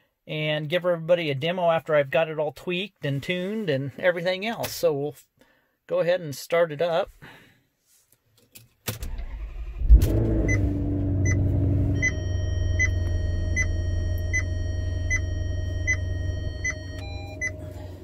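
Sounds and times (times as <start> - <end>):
car engine starting and idling: 8.9 - 18.0
high-pitched warning chime beeping: 10.5 - 18.0.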